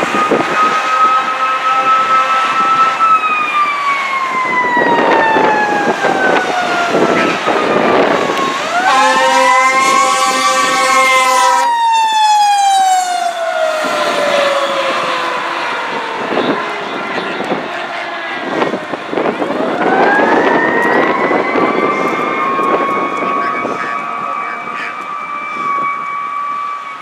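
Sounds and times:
horn blasting: 0:00.0 - 0:03.4, 0:06.9 - 0:07.8, 0:08.7 - 0:11.8
fire engine siren wailing: 0:00.0 - 0:27.0
traffic noise: 0:00.0 - 0:27.0.

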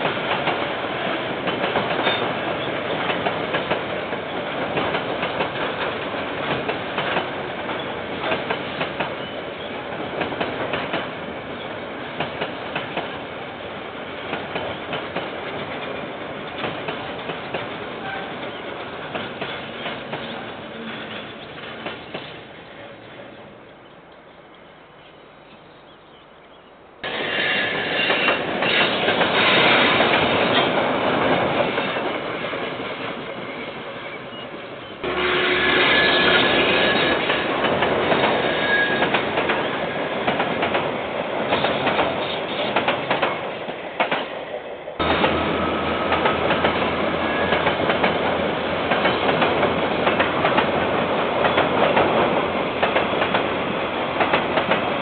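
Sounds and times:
train wheels clattering on track: 0:00.0 - 0:23.2, 0:27.0 - 0:55.0
high wheel squeals: 0:33.5 - 0:39.8, 0:45.4 - 0:47.9.

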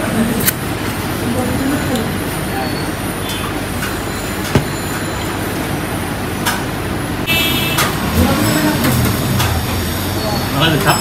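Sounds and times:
restaurant din: 0:00.0 - 0:05.8.

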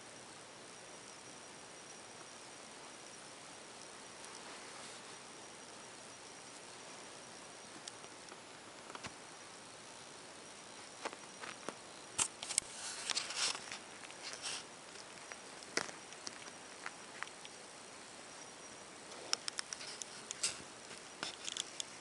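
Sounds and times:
low steady hiss: 0:00.0 - 0:22.0
kitten rustling on blanket: 0:04.4 - 0:05.2, 0:10.8 - 0:15.3.

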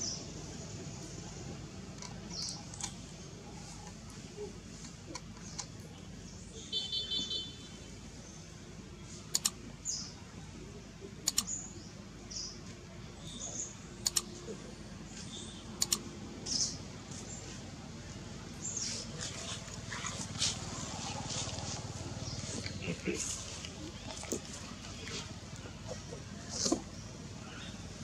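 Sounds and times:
mouse double clicks: 0:09.3 - 0:09.6, 0:11.2 - 0:11.6, 0:14.0 - 0:14.3, 0:15.8 - 0:16.0.

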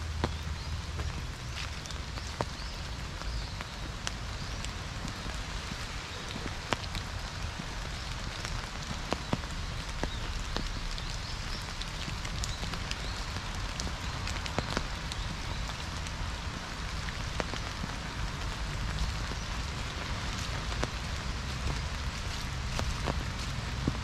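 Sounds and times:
light rain on leaves: 0:00.0 - 0:24.0.

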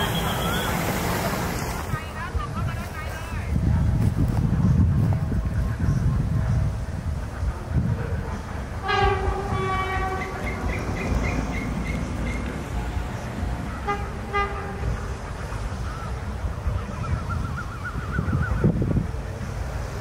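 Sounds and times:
locomotive horn blasts: 0:08.8 - 0:15.2.

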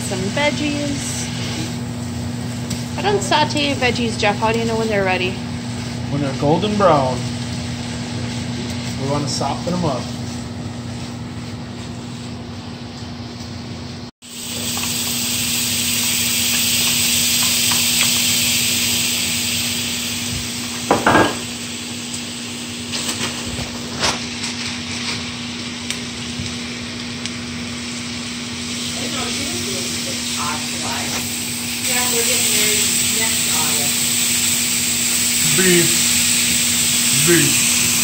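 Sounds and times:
butter sizzling on griddle: 0:00.0 - 0:11.9, 0:14.2 - 0:38.0
vegetables sizzling in skillet: 0:00.0 - 0:12.9, 0:14.2 - 0:38.0.

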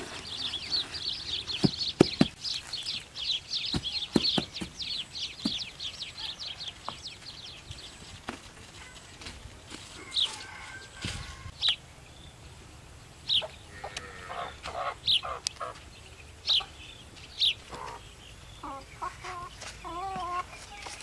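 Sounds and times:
chickens clucking: 0:13.3 - 0:21.0.

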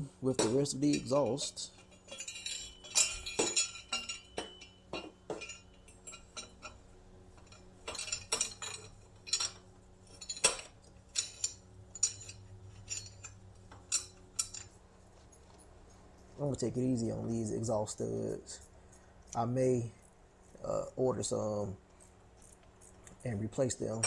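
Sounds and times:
metal pipe clinking and knocking: 0:00.3 - 0:15.6.

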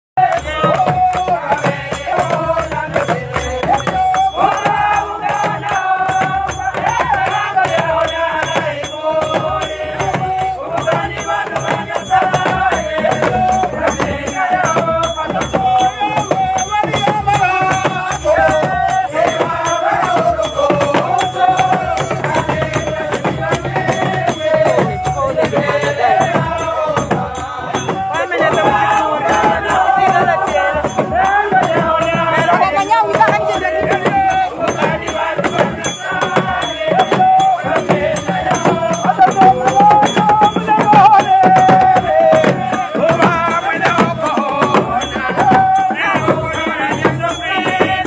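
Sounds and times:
hand clapping: 0:00.2 - 0:08.8
rattling percussion: 0:00.2 - 0:48.0
women singing worship song: 0:00.2 - 0:48.0.

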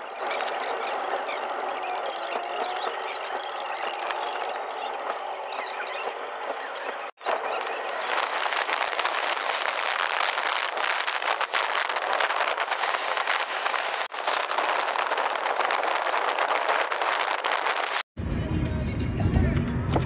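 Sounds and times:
road and wind noise in car: 0:07.3 - 0:20.0.

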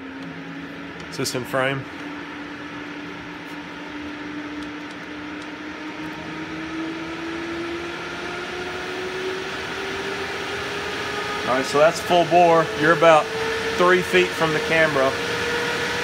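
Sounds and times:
duct fan rushing air and humming: 0:00.0 - 0:16.0.

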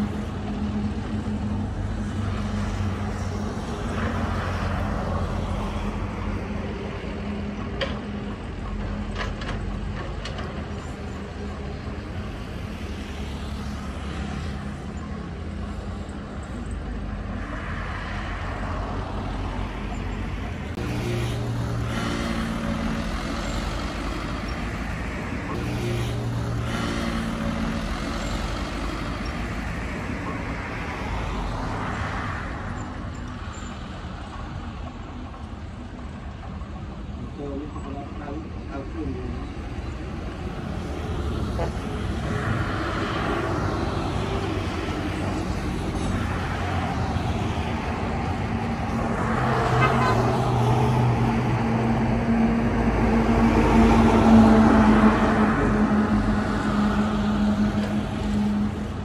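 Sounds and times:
excavator diesel engine: 0:00.0 - 0:59.0.

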